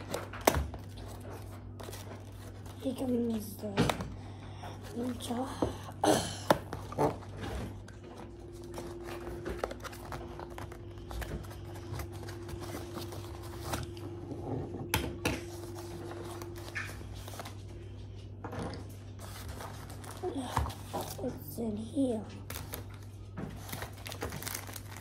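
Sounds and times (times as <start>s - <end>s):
low hum: 0.0s - 24.8s
cardboard and plastic rustling: 0.0s - 25.0s.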